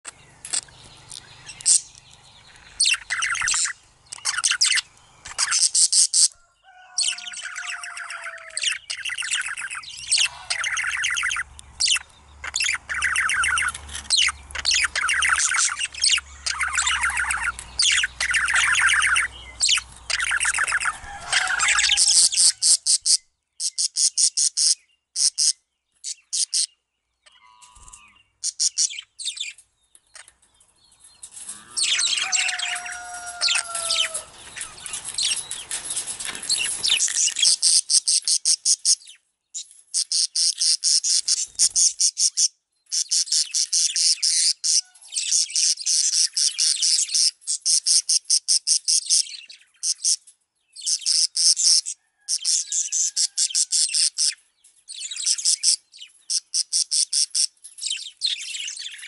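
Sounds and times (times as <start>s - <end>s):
budgerigar warbling and chattering: 2.7s - 6.4s, 7.1s - 25.6s.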